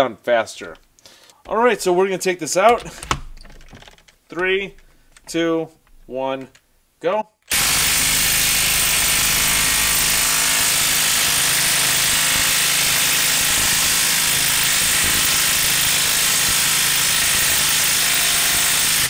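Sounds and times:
impact wrench hammering: 7.5s - 19.0s.

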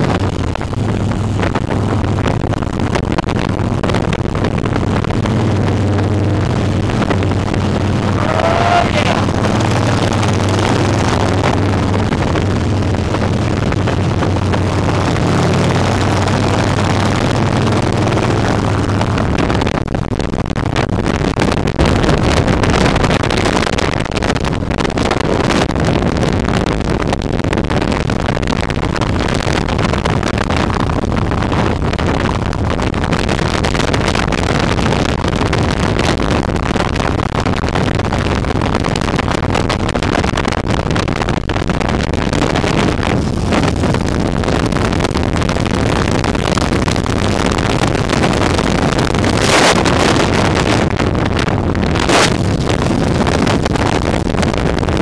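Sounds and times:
motorcycle engine droning: 0.0s - 22.9s
wind buffeting microphone: 0.0s - 55.0s.

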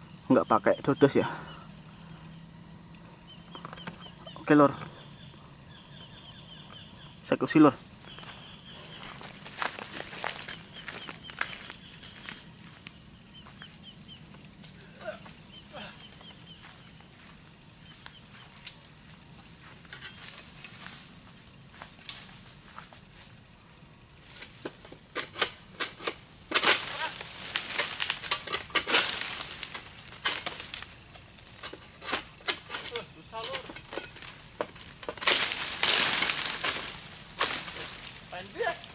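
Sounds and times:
insects droning: 0.0s - 38.9s
sickle hacking palm frond: 24.3s - 30.9s, 34.7s - 38.9s.

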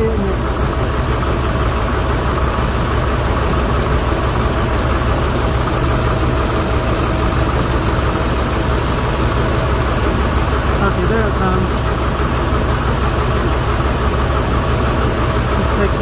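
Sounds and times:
engine idling with valvetrain clatter: 0.0s - 16.0s.

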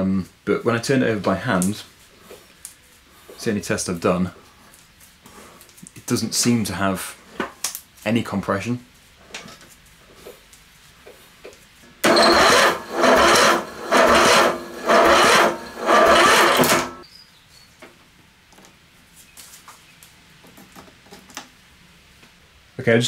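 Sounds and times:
engine whirring when turned over: 12.0s - 17.0s.

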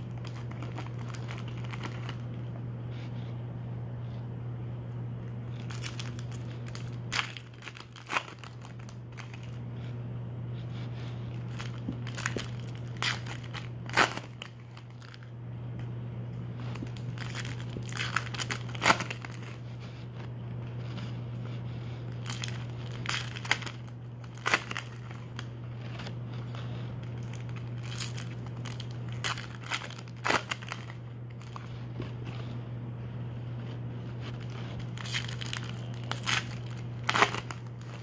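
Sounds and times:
foil wrappers crinkling and tearing: 0.0s - 2.4s, 5.5s - 9.6s, 11.3s - 15.3s, 16.6s - 19.6s, 22.1s - 26.1s, 27.0s - 31.8s, 34.2s - 38.0s
low hum: 0.0s - 38.0s.

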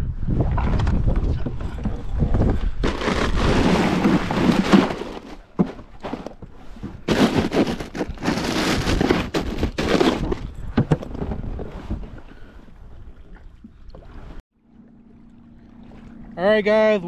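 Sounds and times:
plastic ice bag crinkling: 7.1s - 10.2s.

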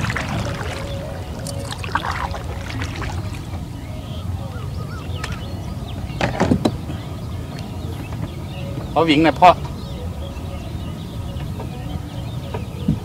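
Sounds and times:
fish splashing in water: 0.0s - 3.8s.

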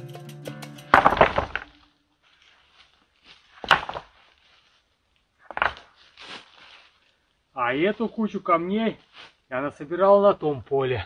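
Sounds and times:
guitar music: 0.0s - 1.9s
stones knocking onto stone heap: 1.0s - 1.7s.

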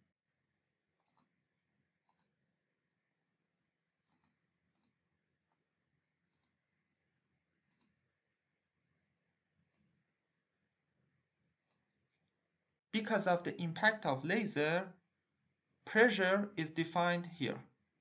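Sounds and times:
computer mouse clicks: 1.0s - 1.4s, 2.0s - 2.4s, 4.0s - 5.0s, 6.3s - 6.6s, 7.6s - 8.0s, 9.7s - 10.0s, 11.7s - 11.9s.

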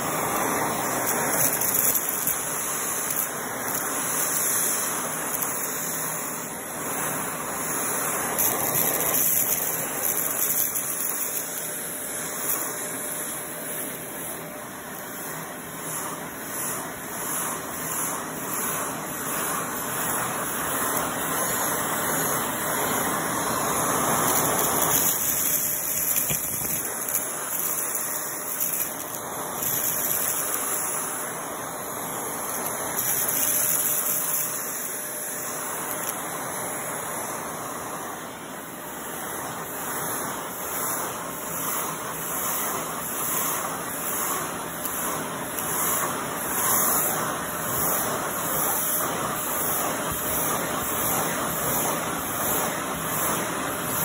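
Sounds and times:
vacuum cleaner suction: 0.0s - 54.0s
rocks rattling up tube: 24.3s - 30.6s.

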